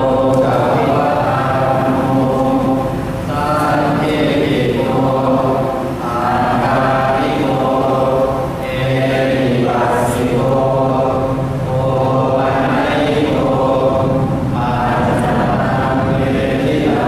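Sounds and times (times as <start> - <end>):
monks chanting in unison: 0.0 - 17.0.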